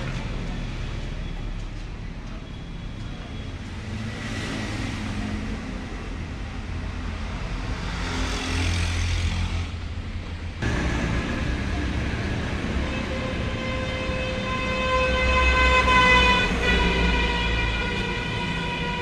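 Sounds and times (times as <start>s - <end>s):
vehicle engine and road rumble: 0.0s - 19.0s.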